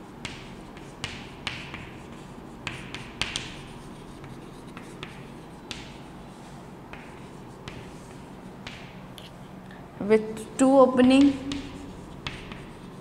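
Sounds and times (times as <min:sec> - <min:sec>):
chalk writing on a chalkboard: 0:00.0 - 0:09.3, 0:11.0 - 0:13.0.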